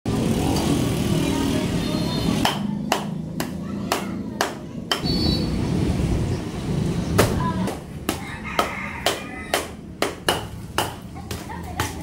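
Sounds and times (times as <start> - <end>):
low rumbling noise: 5.1 - 8.1.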